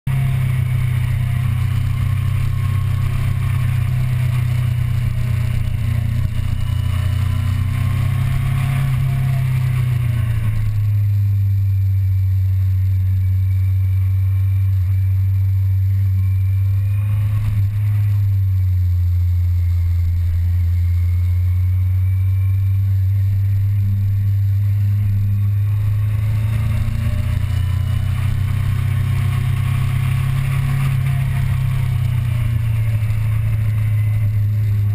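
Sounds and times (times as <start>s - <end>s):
motorcycle engine drone: 0.0s - 34.9s.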